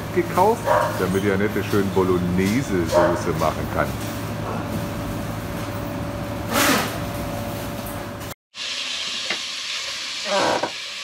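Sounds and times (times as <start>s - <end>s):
electric machine hum: 0.0s - 8.3s
minced meat sizzling in a pot: 8.6s - 11.0s.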